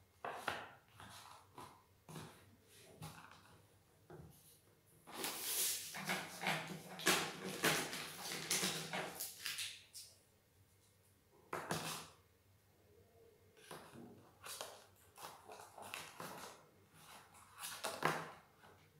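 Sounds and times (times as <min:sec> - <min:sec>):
objects rustling and clattering: 0:00.3 - 0:10.0.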